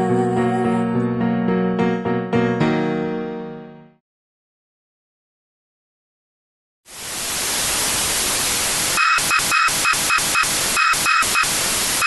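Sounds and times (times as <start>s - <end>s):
television static hiss: 6.9s - 12.0s
stuttering high buzzing tone: 8.9s - 12.0s.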